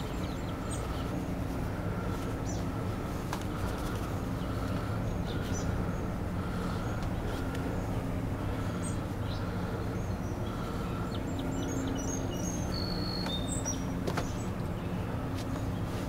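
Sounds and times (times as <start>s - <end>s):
steady low hum: 0.0s - 16.0s
high bird chirps: 10.0s - 15.0s.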